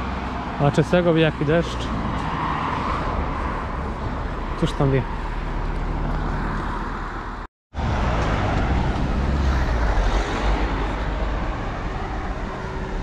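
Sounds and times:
traffic rumble: 0.0s - 13.0s
car driving by close: 5.9s - 13.0s.

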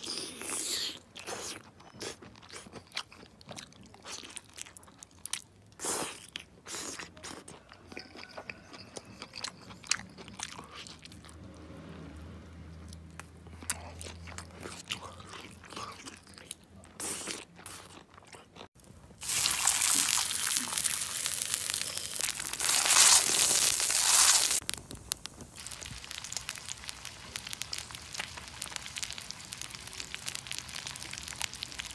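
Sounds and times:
crunching and wet chewing: 0.0s - 11.8s, 12.7s - 31.9s
food sizzling on hot stone: 19.2s - 31.9s.

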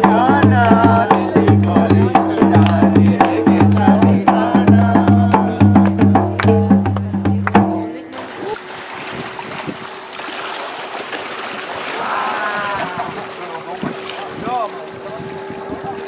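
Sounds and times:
music with drum beat and bass: 0.0s - 8.0s.

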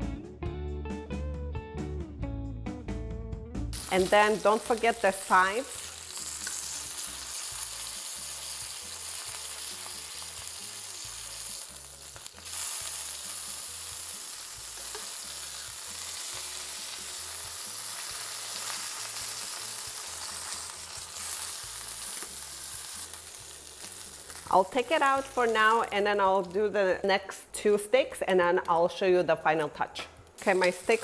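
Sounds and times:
fish sizzling in hot oil: 3.8s - 25.9s, 30.4s - 31.0s.

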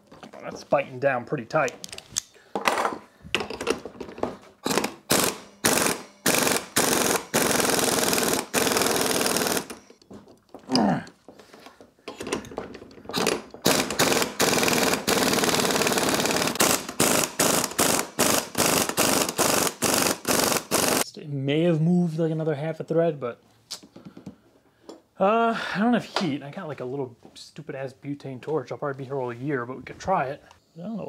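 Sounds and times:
impact wrench hammering: 4.6s - 10.0s, 12.1s - 21.0s.

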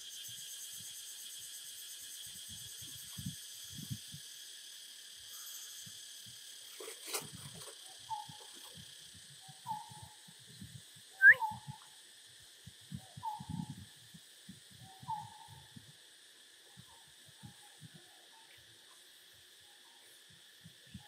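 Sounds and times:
steady high hiss: 0.0s - 21.0s
hoot-like animal calls: 11.2s - 11.8s, 14.9s - 15.7s.

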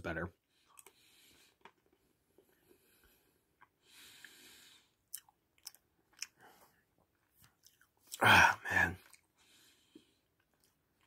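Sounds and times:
faint chewing: 0.6s - 8.2s, 9.0s - 11.0s
soft breath: 2.4s - 5.0s, 9.3s - 10.4s.

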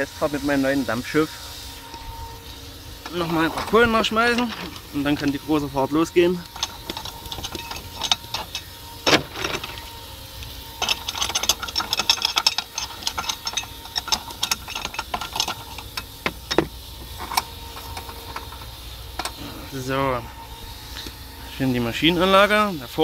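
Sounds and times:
coal clattering against metal: 3.1s - 10.0s, 10.8s - 19.5s.

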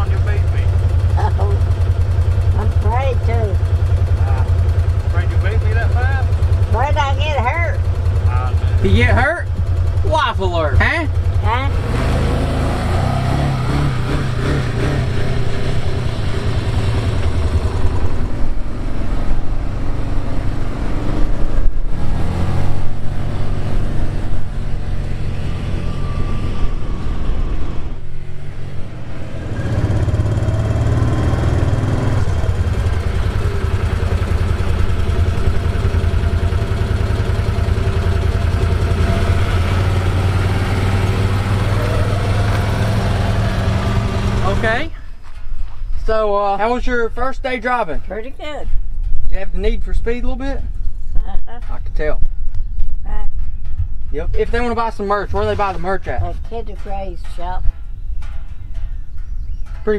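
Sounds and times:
vehicle engine running: 0.0s - 45.3s.

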